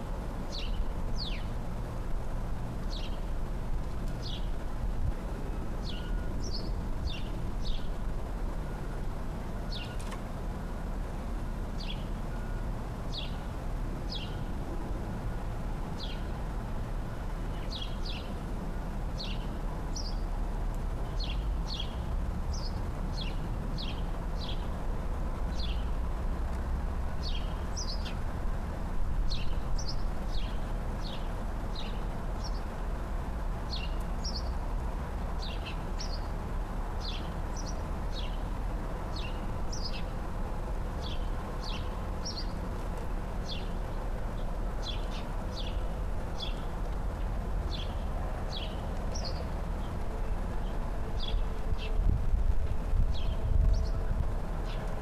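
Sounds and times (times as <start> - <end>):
songbird chirping: 0.0 - 1.6, 2.8 - 3.3, 4.1 - 4.6, 5.2 - 8.9, 9.7 - 10.2, 11.7 - 13.5, 14.1 - 14.6, 16.0 - 16.4, 17.0 - 18.5, 19.2 - 24.8, 25.5 - 28.2, 29.3 - 32.8, 33.7 - 34.7, 35.3 - 40.2, 40.9 - 52.0.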